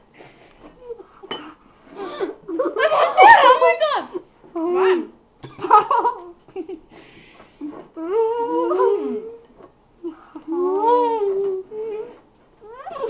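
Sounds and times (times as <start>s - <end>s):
girls humming: 7.6s - 13.0s.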